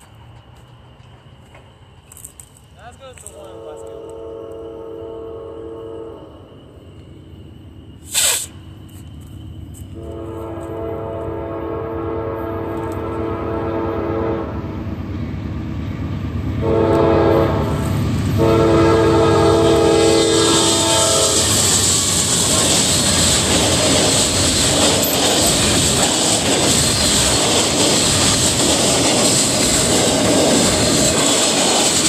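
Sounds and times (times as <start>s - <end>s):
rumble of approaching train: 0.0s - 32.0s
locomotive air horn blasts: 3.4s - 6.3s, 10.0s - 14.5s, 16.6s - 17.8s, 18.4s - 21.5s.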